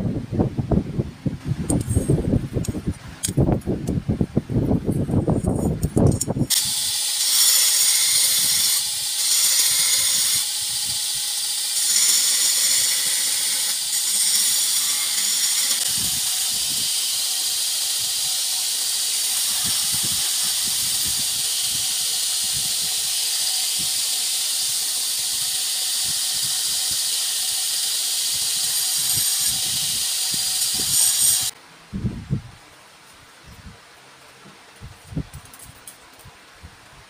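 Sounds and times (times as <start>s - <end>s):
belt grinder grinding steel blade: 5.4s - 31.6s.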